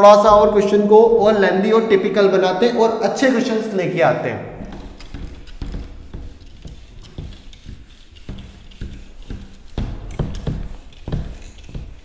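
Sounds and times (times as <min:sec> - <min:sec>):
eraser rubbing on whiteboard: 0:04.6 - 0:12.0.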